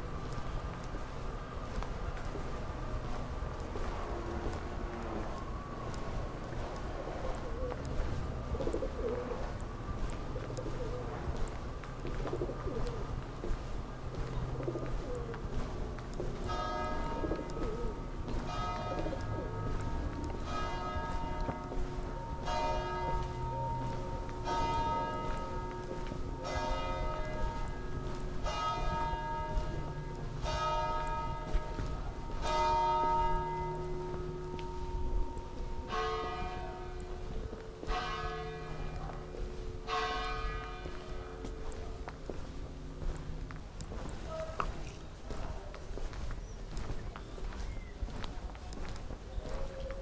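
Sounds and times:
church bell tolling: 16.3 - 43.1.

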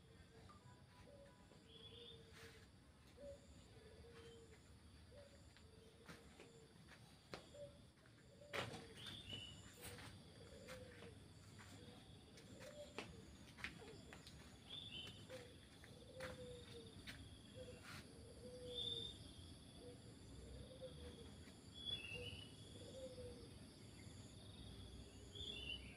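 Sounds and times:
high insect hum: 0.0 - 25.9
birds chirping: 7.5 - 17.0.

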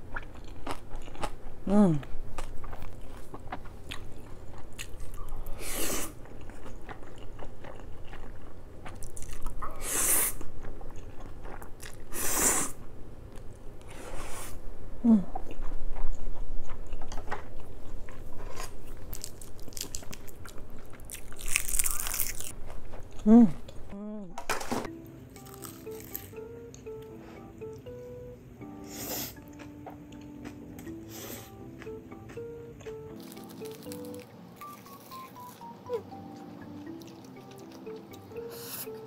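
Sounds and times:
person biting and chewing food: 0.0 - 12.4, 15.3 - 23.8, 25.4 - 26.4, 29.2 - 35.6.

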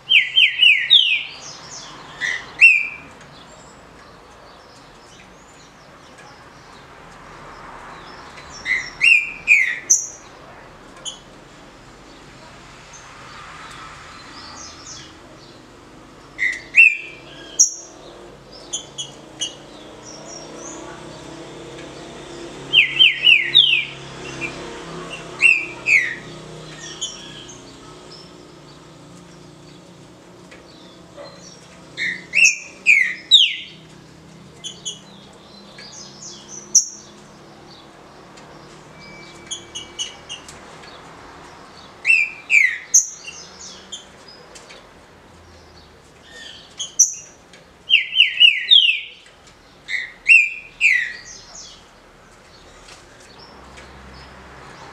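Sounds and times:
high bird chirps: 0.0 - 3.8, 8.4 - 10.3, 16.4 - 20.8, 22.7 - 28.6, 30.8 - 33.9, 38.6 - 41.0, 41.8 - 44.1, 46.2 - 51.9
bird whistling song: 0.1 - 1.4, 2.2 - 3.0, 16.4 - 18.0, 22.7 - 24.0, 32.0 - 33.8, 39.0 - 40.4, 42.1 - 43.4, 47.9 - 49.2, 49.9 - 51.3.

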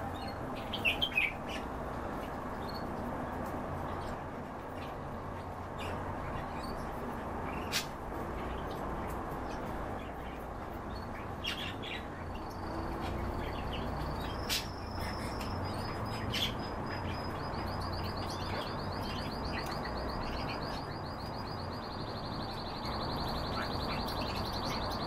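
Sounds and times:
finches chirping: 9.4 - 25.0.

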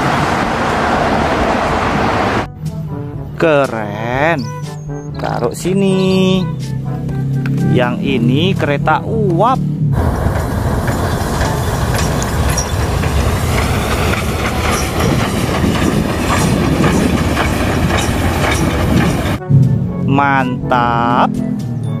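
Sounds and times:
train wheels running on rails: 0.0 - 2.5, 10.0 - 19.4.

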